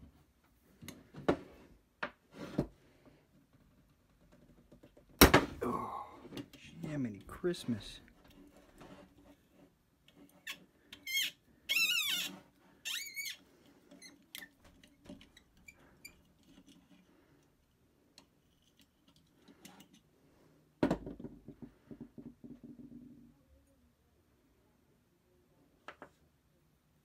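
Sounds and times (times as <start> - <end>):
faint scrapes and ticks: 6.5 - 20.5
metal fitting squeaking: 10.4 - 14.6.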